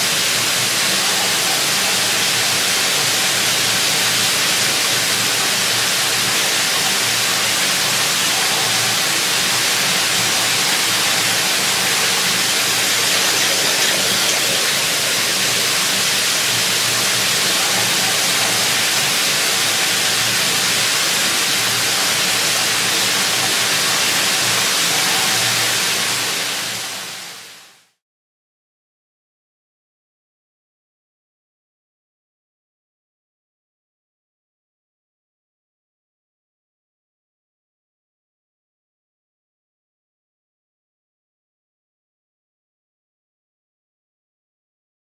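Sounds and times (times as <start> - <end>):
loud rushing hiss: 2.5 - 27.2.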